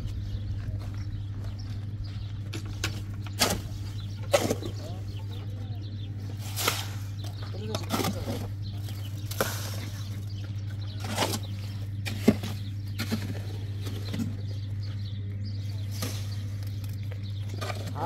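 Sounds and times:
steady low hum: 0:00.0 - 0:18.0
shovel scraping wet mortar: 0:03.3 - 0:05.0, 0:06.3 - 0:10.2, 0:11.0 - 0:14.4.

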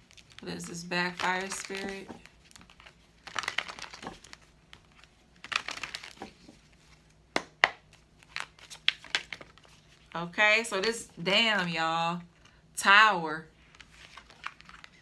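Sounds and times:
cards shuffling: 0:00.0 - 0:10.1, 0:13.6 - 0:15.0.

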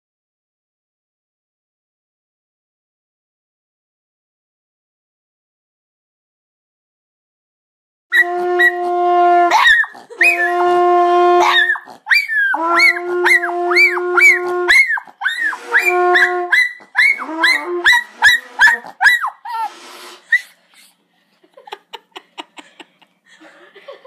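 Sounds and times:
hunting horn notes: 0:08.1 - 0:11.8, 0:12.6 - 0:18.8
dog howling and yelping: 0:09.5 - 0:10.6, 0:11.4 - 0:19.7.

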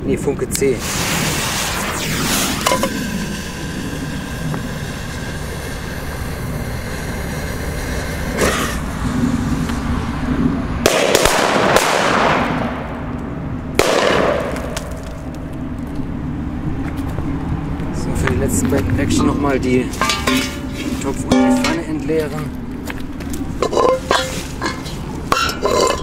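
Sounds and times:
firecrackers banging in metal pot: 0:20.0 - 0:22.0
metal pot ringing: 0:21.3 - 0:22.0.

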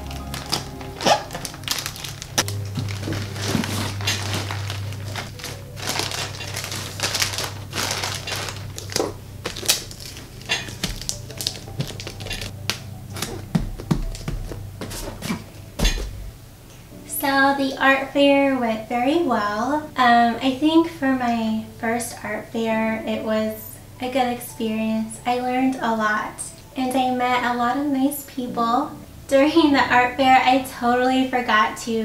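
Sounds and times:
tissue paper and bubble wrap crinkling: 0:00.0 - 0:15.5
background music: 0:00.0 - 0:32.0
cardboard box handling: 0:00.1 - 0:12.5.

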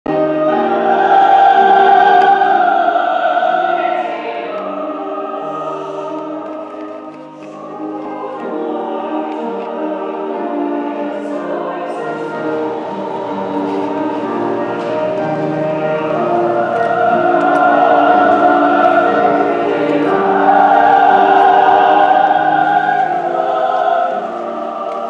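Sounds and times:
choir singing sustained chords: 0:00.1 - 0:25.0.

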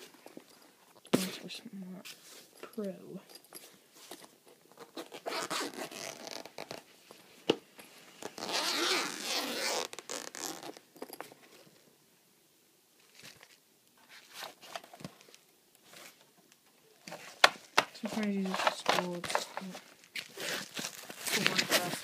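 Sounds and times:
handling clicks and rustles: 0:00.0 - 0:01.4, 0:13.0 - 0:22.0
zipper being pulled open: 0:04.8 - 0:06.9, 0:08.2 - 0:10.8, 0:20.2 - 0:22.0.

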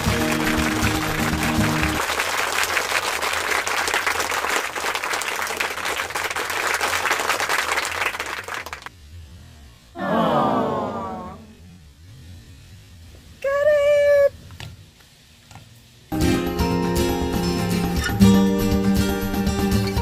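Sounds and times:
music track: 0:00.0 - 0:02.0, 0:16.1 - 0:20.0
crowd applauding: 0:00.0 - 0:08.9.

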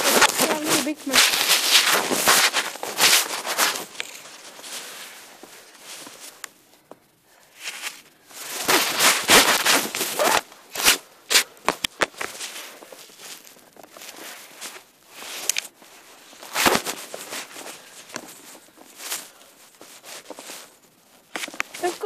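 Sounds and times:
footsteps scuffing on stones: 0:00.0 - 0:04.7
clothing rustle: 0:00.0 - 0:22.0.

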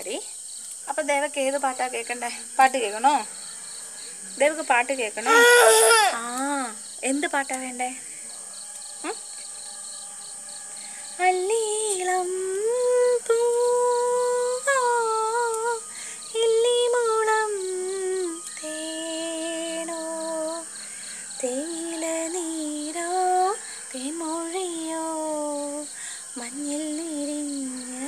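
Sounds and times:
woman singing slowly: 0:08.9 - 0:28.0.

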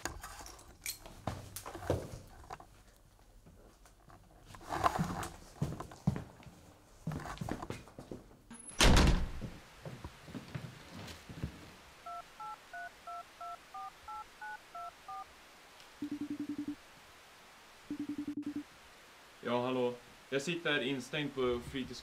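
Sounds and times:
phone ringing tone: 0:12.0 - 0:15.3, 0:16.0 - 0:16.8, 0:17.9 - 0:18.7
phone keypad touch-tones: 0:12.1 - 0:15.2, 0:16.0 - 0:16.8.

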